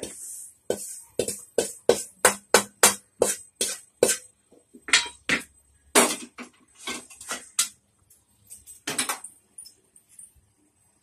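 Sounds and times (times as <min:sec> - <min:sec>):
metal spoon scraping in a pan: 0:03.2 - 0:04.3.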